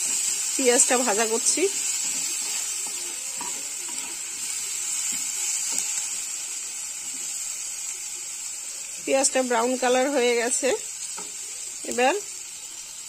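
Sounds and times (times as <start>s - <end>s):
spatula scraping a pan: 0.0s - 6.2s
onions sizzling in oil: 0.0s - 13.0s.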